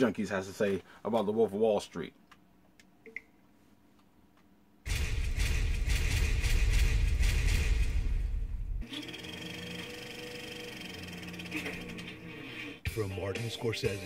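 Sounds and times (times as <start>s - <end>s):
trailer music chords: 4.9s - 8.8s.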